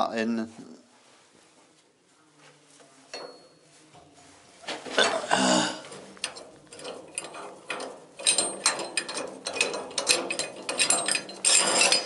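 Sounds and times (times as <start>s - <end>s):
metal tools clicking and rattling: 6.0s - 12.0s.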